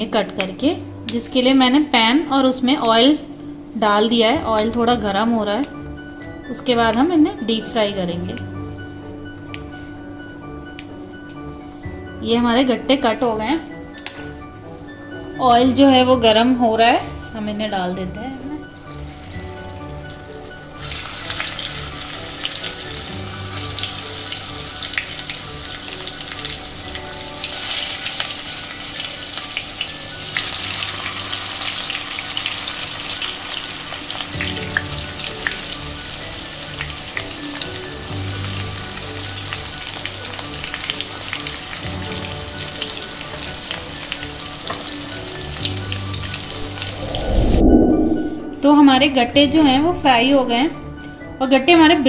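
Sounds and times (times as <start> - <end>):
dumplings sizzling in hot oil: 18.4 - 46.9.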